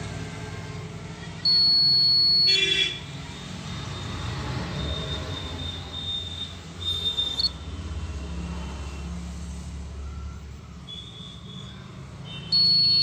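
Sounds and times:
multimeter continuity beeps: 1.4s - 2.9s, 3.7s - 7.6s, 12.3s - 13.0s.

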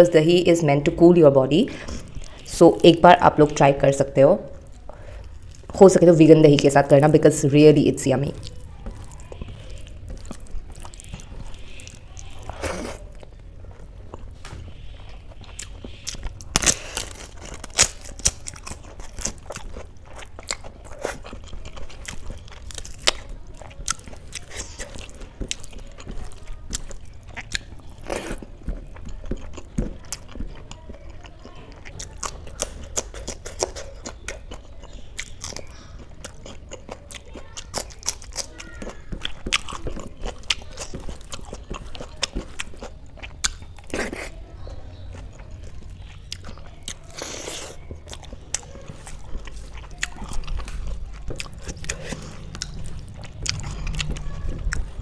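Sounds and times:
crunching and chewing: 4.5s - 7.4s, 8.1s - 55.0s
fingers squishing wet food: 4.6s - 55.0s
mouth clicks: 31.8s - 41.0s.

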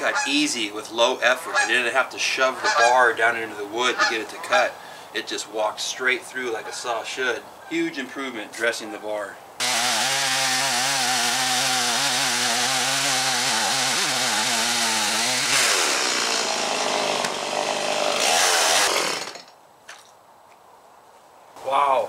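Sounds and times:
chainsaw cutting through log: 9.6s - 19.6s.

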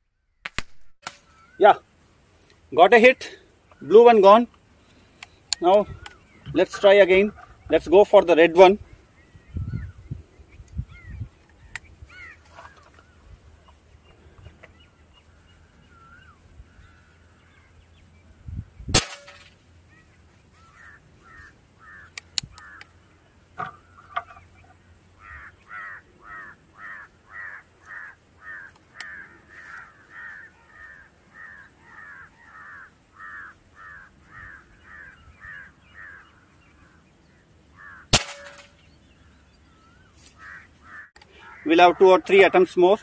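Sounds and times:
bird calling: 1.1s - 1.9s, 2.5s - 18.4s, 19.0s - 43.0s
air rifle shots: 18.9s - 19.6s, 38.1s - 38.8s.

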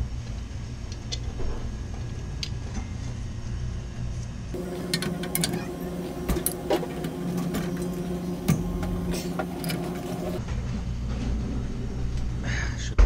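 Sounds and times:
low machinery hum: 0.0s - 13.0s
motor humming and whining: 4.6s - 10.5s.

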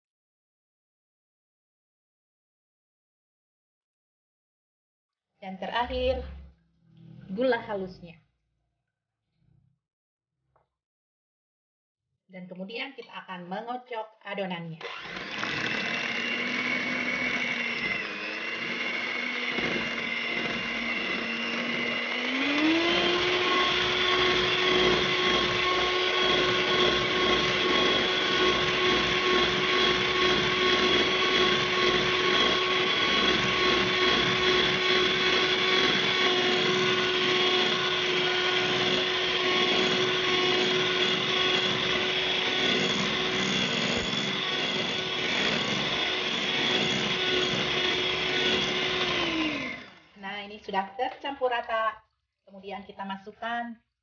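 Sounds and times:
electric hand mixer whirring: 14.8s - 50.7s.

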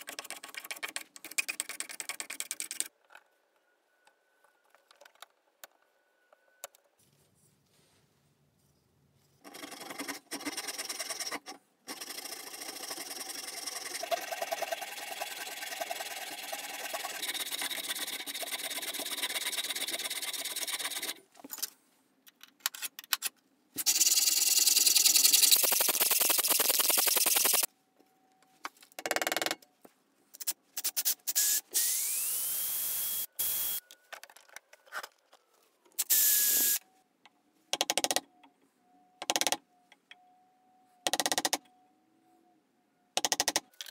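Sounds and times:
small motor whining: 31.4s - 33.8s.

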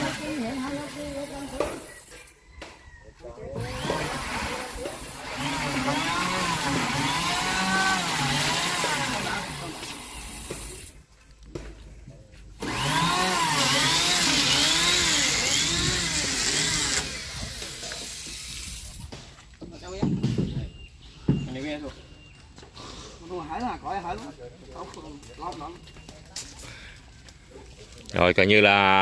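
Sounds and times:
power tool cutting wood: 0.0s - 2.2s, 3.6s - 11.0s, 12.6s - 18.9s.

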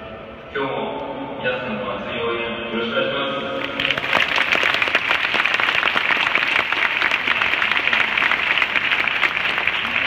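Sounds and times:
crowd applauding: 3.6s - 10.0s.

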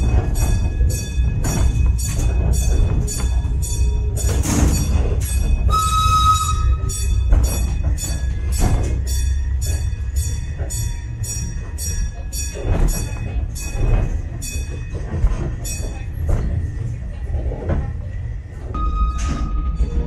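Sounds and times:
tram rumbling on rails: 0.0s - 20.0s.

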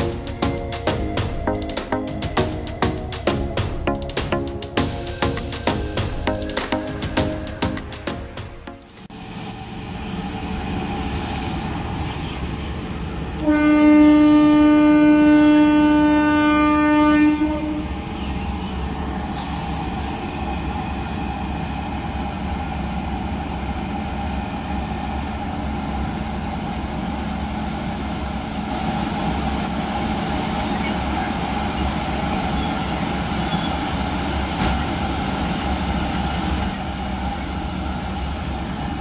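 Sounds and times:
train rolling hum and rumble: 0.0s - 39.0s
locomotive horn blast: 13.4s - 17.9s.

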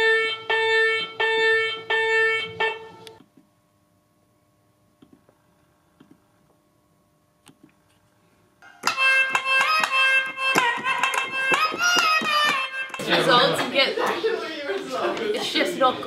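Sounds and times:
faint steady hum: 0.0s - 16.0s
electronic keyboard music: 8.8s - 13.6s.

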